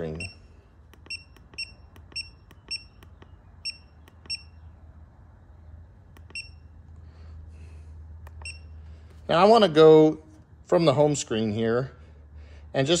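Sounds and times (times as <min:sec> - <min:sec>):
button clicks: 0:00.2 - 0:04.5, 0:06.1 - 0:06.6
short high beeps: 0:01.1 - 0:03.0, 0:03.6 - 0:04.6, 0:06.3 - 0:06.6.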